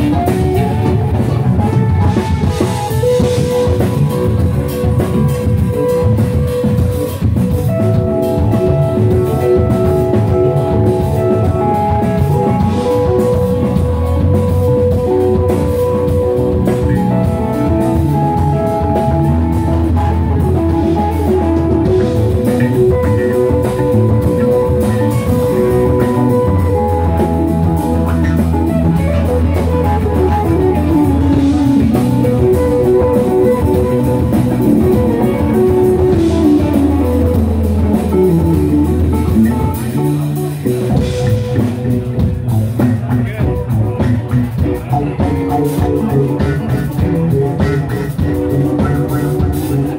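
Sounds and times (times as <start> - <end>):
rock band playing loudly: 0.0 - 49.9.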